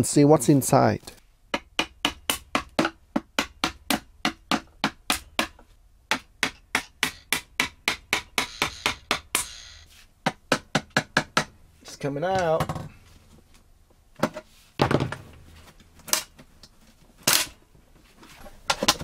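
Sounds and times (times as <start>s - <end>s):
hammer tapping a screwdriver: 6.5s - 9.6s.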